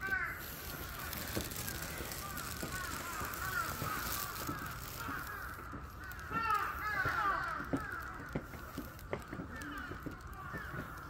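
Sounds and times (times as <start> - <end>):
crows cawing: 0.0 - 11.0.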